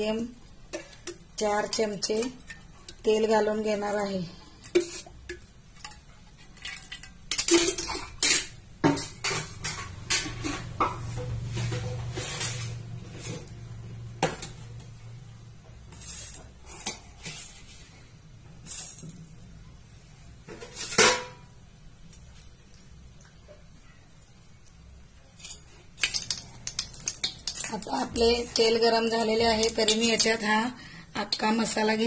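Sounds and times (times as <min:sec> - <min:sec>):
metal utensils and pots clattering: 0:00.7 - 0:03.3, 0:04.4 - 0:13.5, 0:20.5 - 0:21.5, 0:25.4 - 0:30.6.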